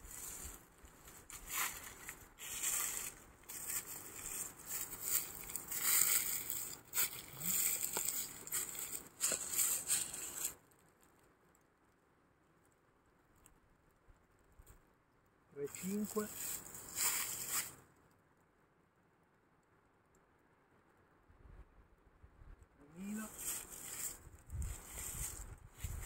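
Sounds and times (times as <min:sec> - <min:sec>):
footsteps through dry leaves: 0:00.0 - 0:10.6, 0:15.7 - 0:17.8, 0:23.0 - 0:26.0.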